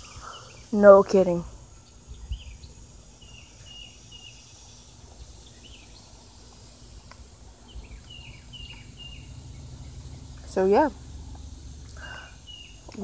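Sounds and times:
high insect drone: 0.0s - 13.0s
chirping bird calls: 1.8s - 13.0s
low rumble: 7.2s - 12.9s.

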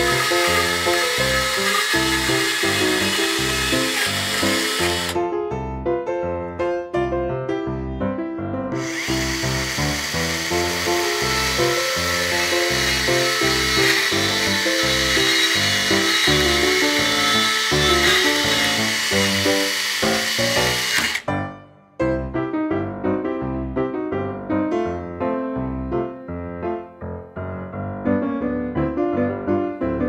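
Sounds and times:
miniature chainsaw cutting wood: 0.0s - 5.2s, 8.8s - 21.4s
background music: 0.0s - 30.0s.

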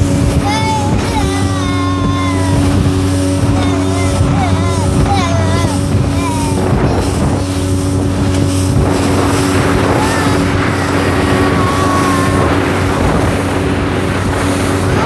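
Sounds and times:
motorboat engine running: 0.0s - 15.0s
water rushing along hull: 0.0s - 15.0s
wind buffeting microphone: 0.0s - 15.0s.

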